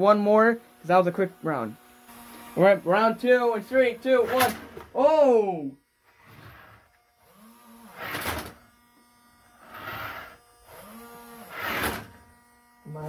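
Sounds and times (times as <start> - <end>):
cardboard cars scraping on wood: 6.1 - 6.9, 9.6 - 10.3, 11.5 - 12.1.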